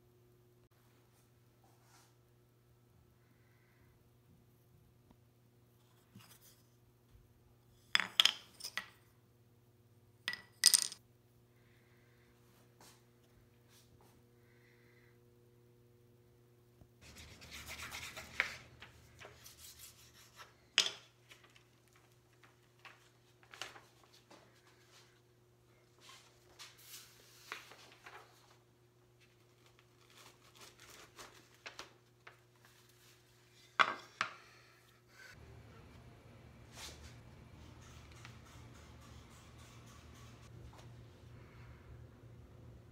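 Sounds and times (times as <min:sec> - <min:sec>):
faint steady hum: 0:00.0 - 0:42.9
paper rustling and tapping: 0:20.8 - 0:24.4, 0:27.4 - 0:28.6.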